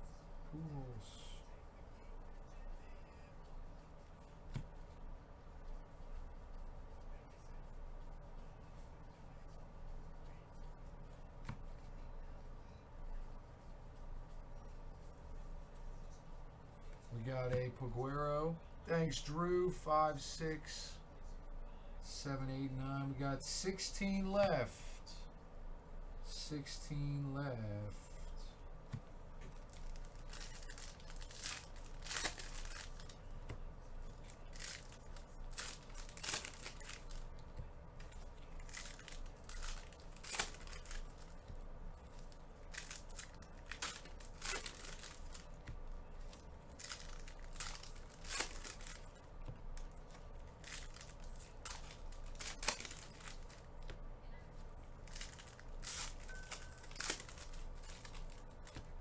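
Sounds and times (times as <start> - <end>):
foil wrappers tearing and crinkling: 29.5 - 33.3, 34.1 - 37.4, 38.0 - 49.2, 49.8 - 53.7, 55.0 - 58.9.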